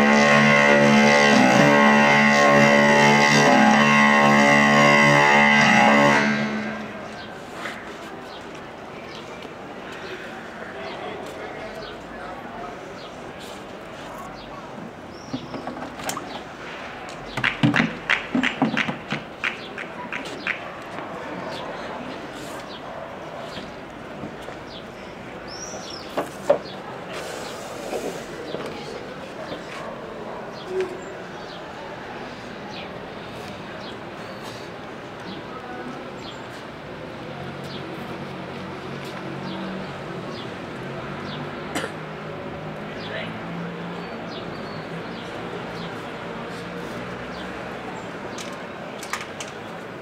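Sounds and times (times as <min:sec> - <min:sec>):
birds chirping: 0:14.2 - 0:16.5, 0:24.7 - 0:27.6
sharp taps and knocks: 0:17.4 - 0:20.6.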